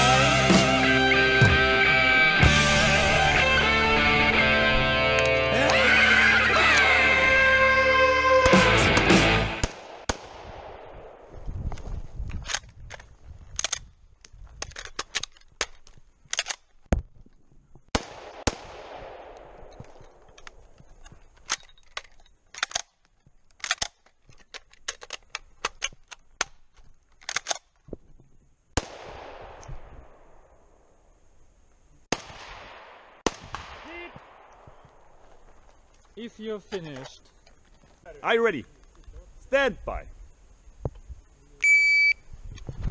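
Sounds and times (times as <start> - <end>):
rifle shots echoing: 8.9 - 11.4, 17.9 - 20.3, 28.8 - 31.0, 32.1 - 35.6
sharp cracks and clicks: 12.3 - 16.9, 17.9 - 27.9.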